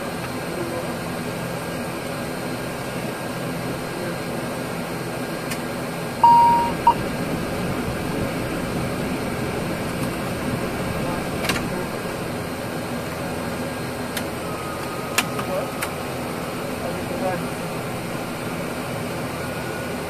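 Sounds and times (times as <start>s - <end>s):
aircraft hum: 1.5s - 20.0s
electronic beep: 6.2s - 7.0s.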